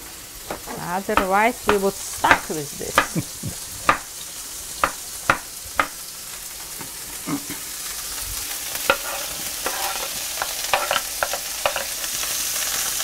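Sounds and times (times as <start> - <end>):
mushrooms sizzling in a pan: 0.0 - 13.0
utensil scraping a pan: 8.7 - 12.2.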